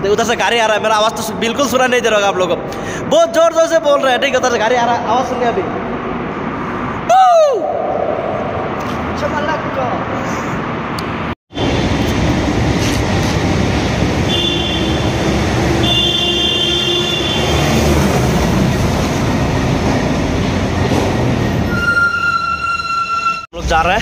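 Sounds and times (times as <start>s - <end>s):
truck rumbling through tunnel: 0.0s - 24.0s
high thin squeal: 21.6s - 23.5s.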